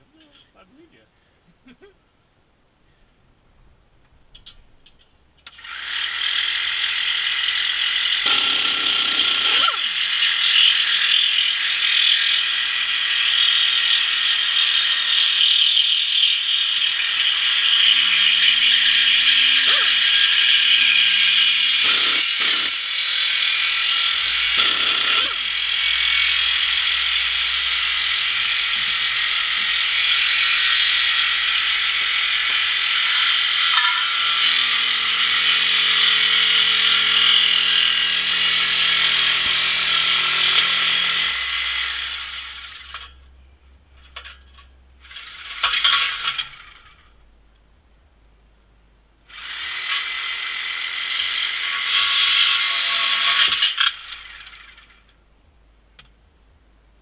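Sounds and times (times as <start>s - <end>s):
air saw cutting metal pipe: 5.5s - 43.2s, 45.1s - 47.0s, 49.3s - 54.9s.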